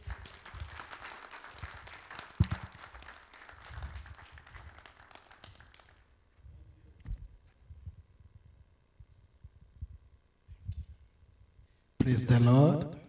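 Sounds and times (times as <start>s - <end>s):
congregation clapping: 0.0s - 6.2s.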